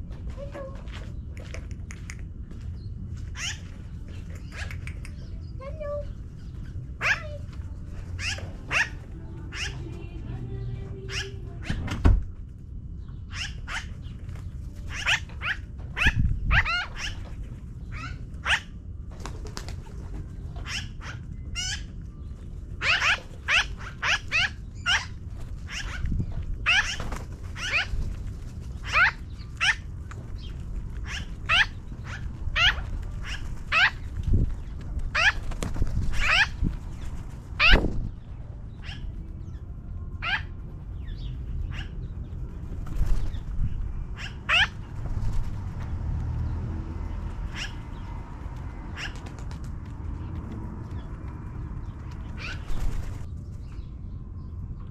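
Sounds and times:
steady low rumble: 0.0s - 54.9s
magpies calling: 3.2s - 9.9s, 11.1s - 11.8s, 13.0s - 18.8s, 20.4s - 22.0s, 22.8s - 39.6s, 40.2s - 42.4s, 44.0s - 45.0s, 47.3s - 48.2s, 48.8s - 49.4s, 51.0s - 53.3s.

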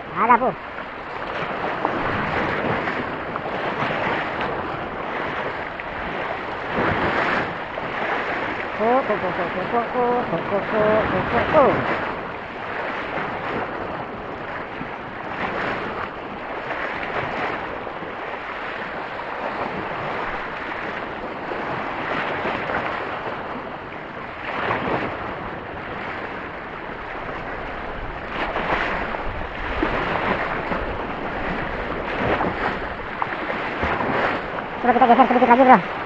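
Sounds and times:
small waves breaking over rocks: 0.1s - 36.0s.

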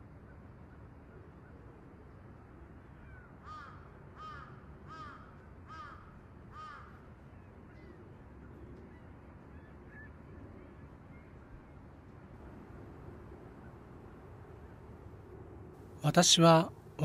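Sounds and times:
faint steady hum: 0.0s - 17.0s
crow cawing: 3.4s - 7.1s.

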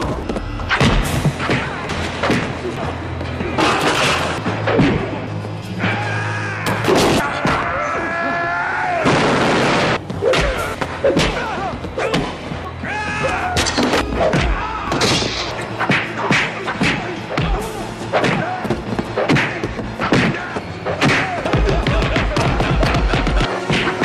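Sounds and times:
film music score: 0.0s - 24.0s
men shouting cries: 5.8s - 9.0s, 10.2s - 13.7s.

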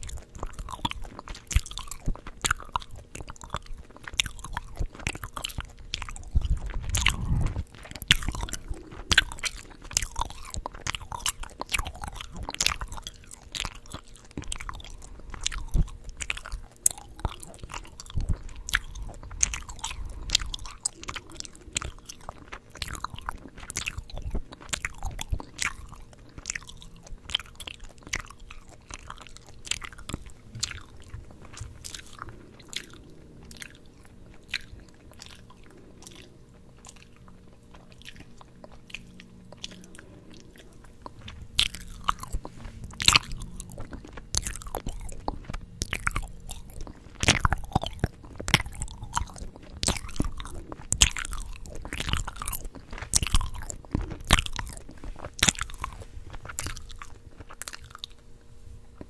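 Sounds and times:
gum chewing mouth smacks: 0.0s - 59.0s
low rumble: 6.0s - 9.7s, 26.5s - 52.4s.

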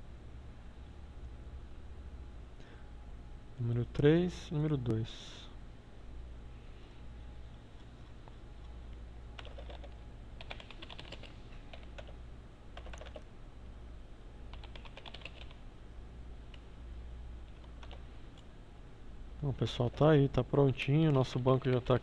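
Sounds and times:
low steady hum: 0.0s - 22.0s
computer keyboard typing: 9.4s - 12.2s, 12.8s - 13.2s, 14.5s - 15.6s, 17.5s - 18.0s, 21.6s - 22.0s.

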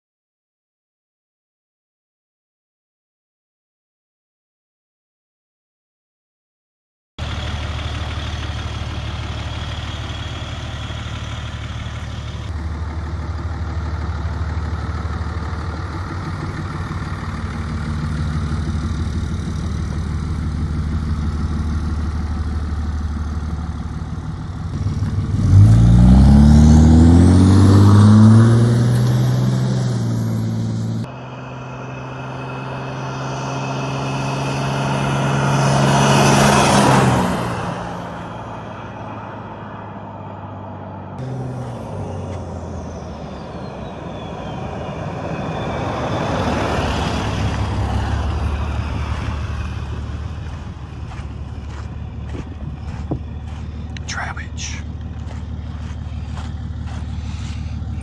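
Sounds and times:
pickup truck engine revving: 7.2s - 58.0s.

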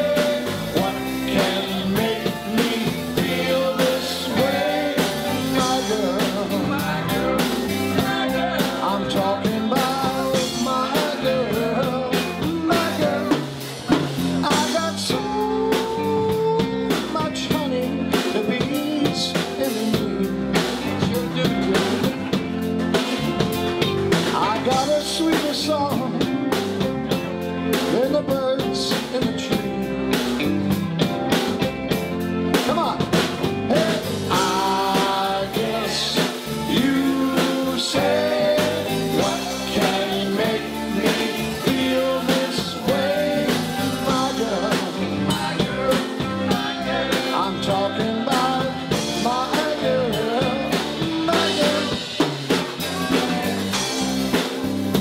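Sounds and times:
men singing into microphones: 0.0s - 22.5s, 24.2s - 26.8s, 33.7s - 54.3s
live rock band playing: 0.0s - 55.0s.

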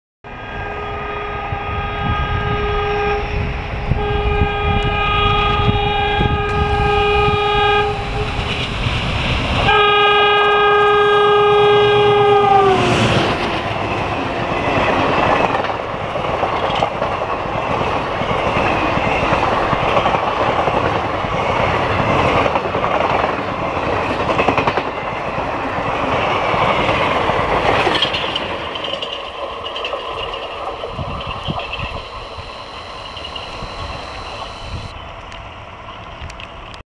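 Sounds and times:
locomotive horn blasts: 0.3s - 13.4s, 30.9s - 35.0s
train wheels clattering over rail joints: 13.3s - 32.0s.

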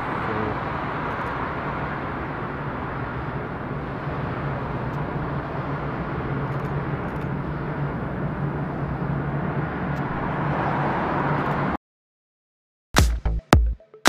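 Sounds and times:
low hum: 0.0s - 10.9s
jet engines rushing: 0.0s - 11.8s.

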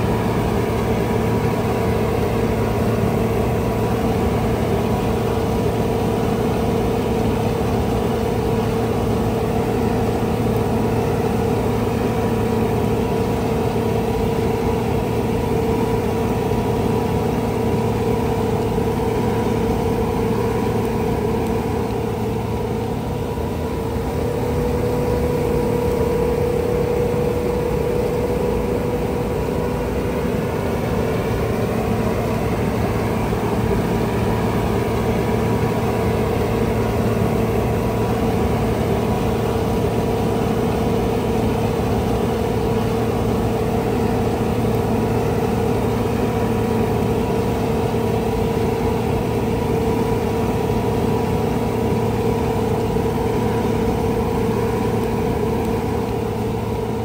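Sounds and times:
heavy diesel engine humming: 0.0s - 57.0s.

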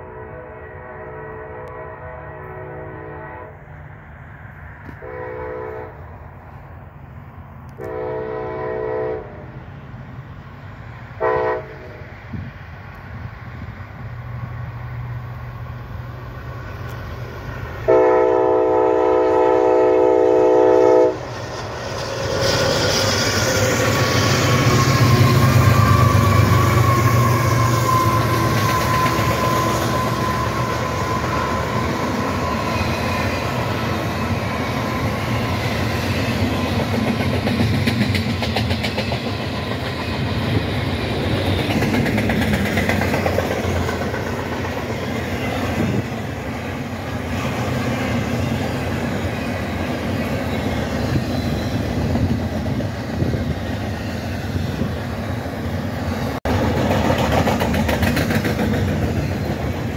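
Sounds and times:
locomotive horn blast: 0.0s - 3.7s, 5.0s - 6.1s, 7.8s - 9.5s, 11.2s - 12.0s, 17.8s - 21.3s
diesel locomotives rumbling past: 0.0s - 59.9s
freight train rolling clatter: 9.5s - 59.9s.

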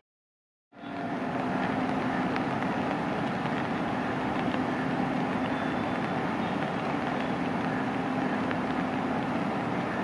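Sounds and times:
electric locomotive hum: 0.8s - 10.0s
train running noise: 0.8s - 10.0s.

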